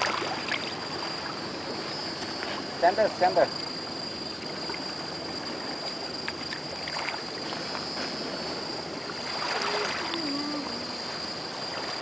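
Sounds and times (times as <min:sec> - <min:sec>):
crickets droning: 0:00.0 - 0:12.0
small waves on pebbly shore: 0:09.2 - 0:10.3.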